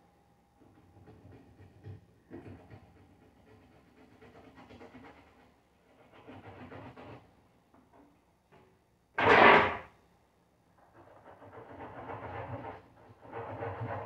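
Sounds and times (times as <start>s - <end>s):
knife sawing through ribs: 2.4s - 7.3s, 10.9s - 14.0s.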